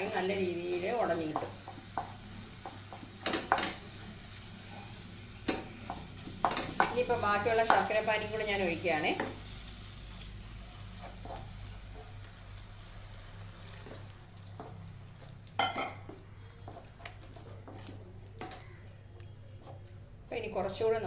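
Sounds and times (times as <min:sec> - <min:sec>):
spatula mashing food in pan: 0:00.0 - 0:08.3, 0:09.2 - 0:12.6, 0:13.6 - 0:20.6
low sizzle: 0:00.0 - 0:21.0
spatula scraping and tapping pan: 0:01.0 - 0:04.0, 0:04.6 - 0:08.0, 0:13.7 - 0:18.8.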